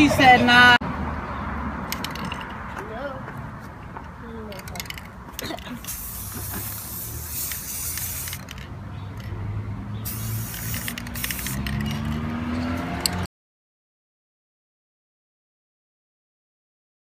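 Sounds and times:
spray paint can hissing: 0:05.8 - 0:08.6, 0:10.0 - 0:12.1.

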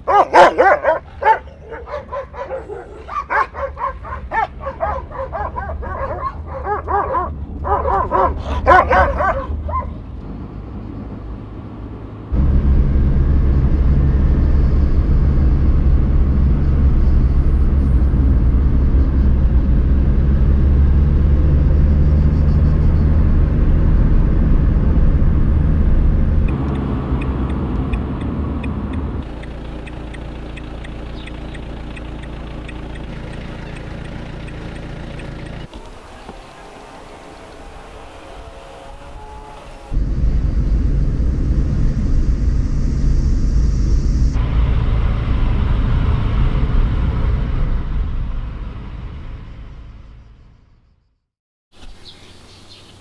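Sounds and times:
car engine running: 0:00.0 - 0:50.8
dog barking short calls: 0:00.1 - 0:09.9.

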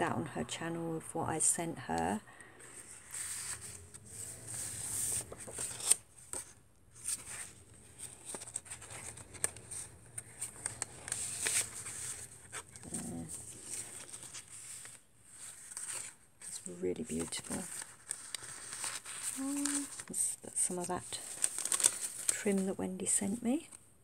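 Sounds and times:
paper and card rustling: 0:02.4 - 0:23.8.

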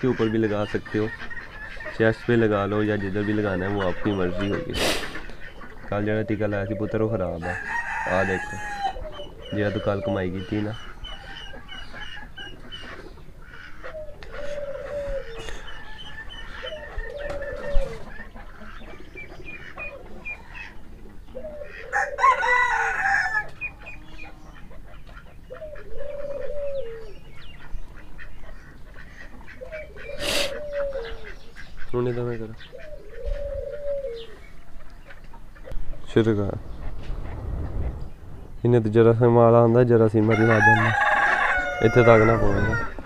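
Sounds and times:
chickens calling: 0:00.0 - 0:43.0
rooster crowing: 0:07.4 - 0:09.1, 0:21.8 - 0:23.6, 0:40.2 - 0:43.0.

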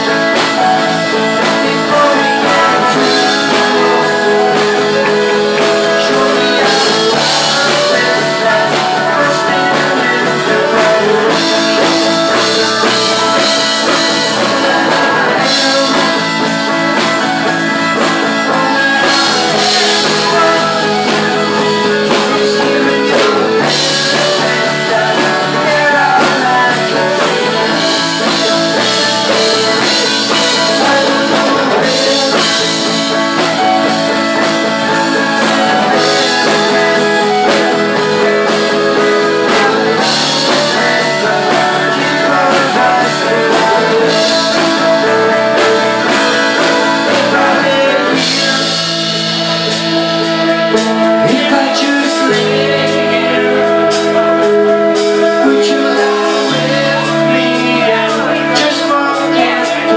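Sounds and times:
drum kit: 0:00.0 - 0:59.9
electric guitar: 0:00.0 - 0:59.9
man singing: 0:00.0 - 0:59.9.

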